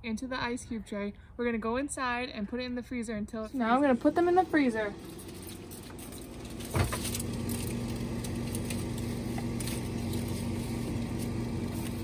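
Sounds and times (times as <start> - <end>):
refrigerator humming: 3.7 - 12.0.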